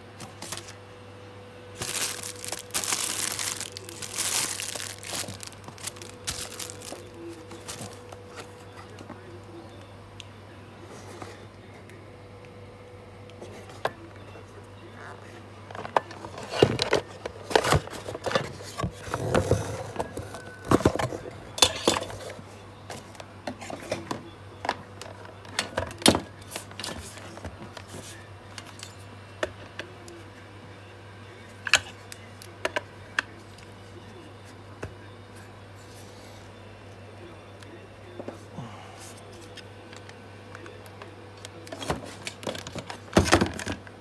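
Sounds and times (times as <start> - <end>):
steady low hum: 0.0 - 44.0
cardboard box being handled: 1.8 - 8.1.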